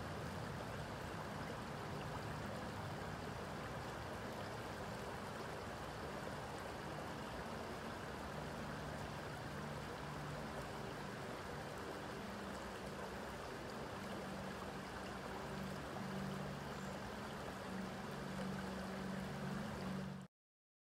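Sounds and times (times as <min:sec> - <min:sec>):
creek water running over rocks: 0:00.0 - 0:20.3
low steady hum: 0:00.0 - 0:20.3.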